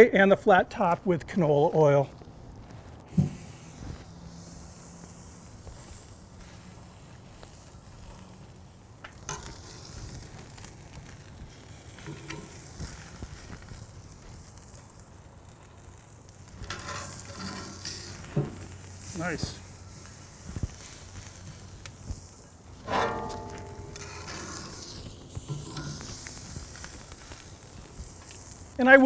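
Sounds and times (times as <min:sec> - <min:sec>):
steak sizzling on a grill: 0:01.9 - 0:29.0.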